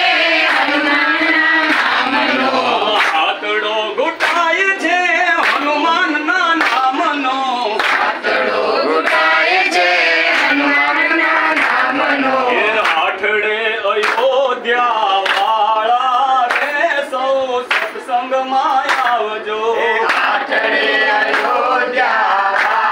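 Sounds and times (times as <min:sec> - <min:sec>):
group singing devotional song: 0:00.0 - 0:22.9
hands clapping in rhythm: 0:00.0 - 0:22.9.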